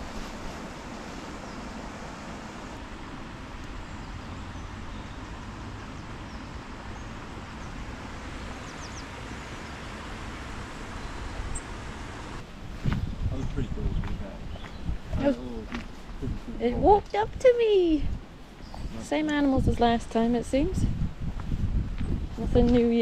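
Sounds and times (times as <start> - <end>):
wind noise on microphone: 6.3 - 23.0.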